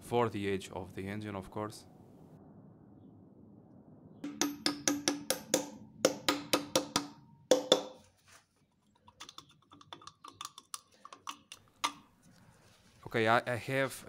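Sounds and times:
metal-on-metal tapping: 4.2s - 8.0s, 9.0s - 12.1s.

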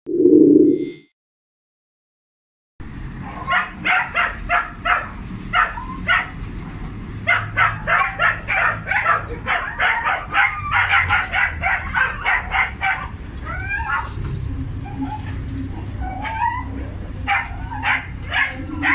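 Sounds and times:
dogs barking: 3.2s - 6.5s, 7.2s - 18.9s.

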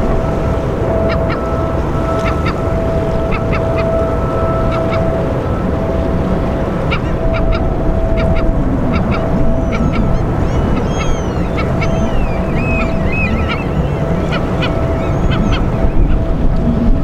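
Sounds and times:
low rumble: 0.0s - 17.0s
birds calling: 0.9s - 5.2s, 6.8s - 16.3s
whistling chirps: 7.2s - 16.1s.

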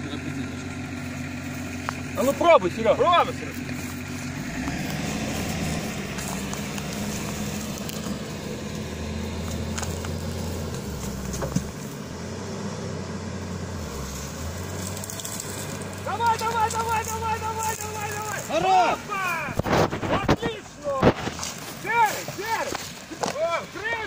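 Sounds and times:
car engine running: 0.0s - 24.0s
stone dragging through dry grass: 3.4s - 12.0s, 13.7s - 23.4s.

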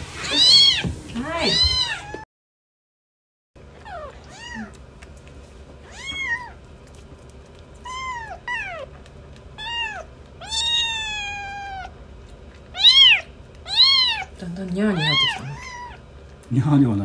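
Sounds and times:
kittens mewing: 0.2s - 2.2s, 3.8s - 5.0s, 5.8s - 6.7s, 7.8s - 12.0s, 12.6s - 16.2s.

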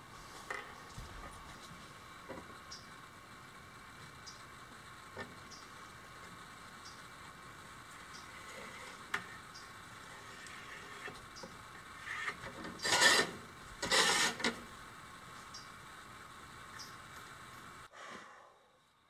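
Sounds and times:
rasping scrapes on ceramic tile: 12.1s - 14.6s.

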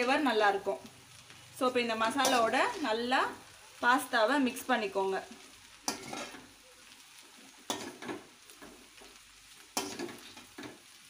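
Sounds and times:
faint frying sizzle: 0.0s - 11.0s
spoon scraping metal pan: 5.8s - 6.5s.

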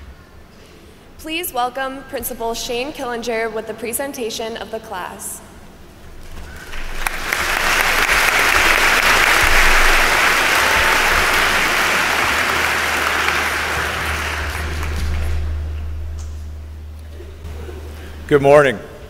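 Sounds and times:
large audience applauding: 6.2s - 15.8s.

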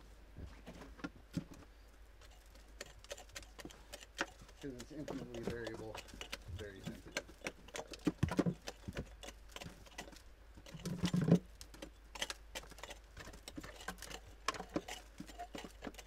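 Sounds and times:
pick chipping at clay: 2.7s - 16.0s.

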